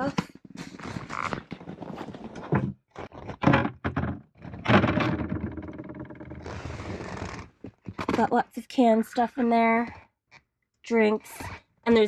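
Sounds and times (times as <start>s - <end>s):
scraping and rubbing: 0.4s - 3.5s, 4.4s - 10.0s.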